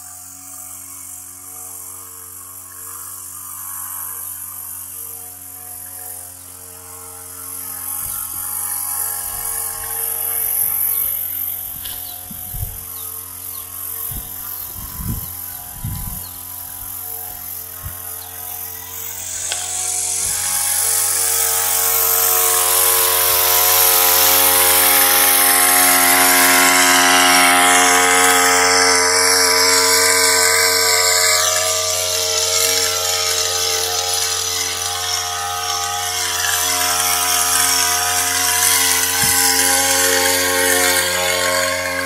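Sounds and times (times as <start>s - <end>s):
spray pump motor running: 0.0s - 42.0s
spray hissing: 7.8s - 42.0s.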